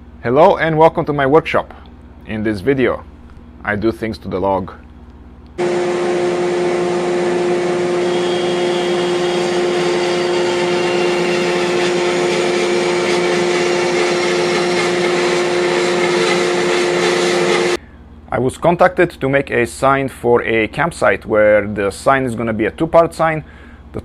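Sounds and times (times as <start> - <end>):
bandsaw cutting through log: 5.6 - 17.8.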